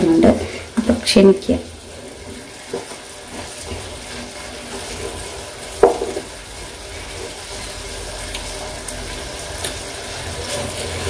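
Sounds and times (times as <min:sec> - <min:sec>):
vegetables sizzling in a pan: 0:00.0 - 0:11.0
utensil knocking against pan: 0:05.8 - 0:06.3.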